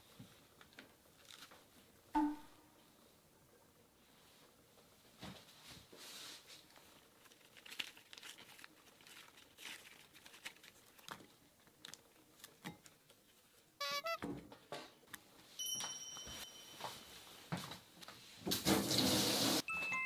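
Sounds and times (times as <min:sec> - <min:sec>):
mushrooms tearing and crackling: 0:07.2 - 0:12.6.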